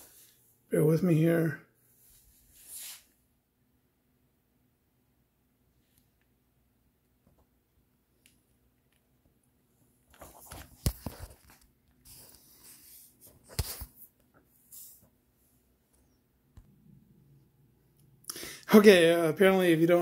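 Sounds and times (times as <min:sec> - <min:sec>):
hands rubbing on phone: 0:02.0 - 0:03.2, 0:10.2 - 0:15.2.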